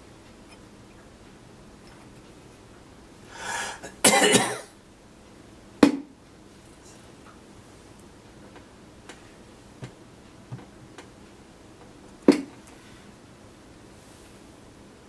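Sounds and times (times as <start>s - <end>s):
person coughing: 3.7s - 4.7s.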